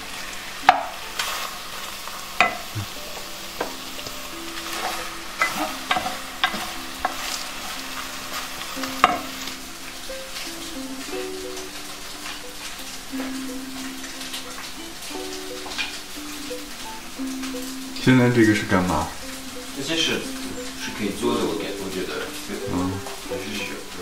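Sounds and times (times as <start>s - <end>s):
bread frying in a pan: 0.0s - 24.0s
utensil clinking against pan: 2.4s - 9.5s.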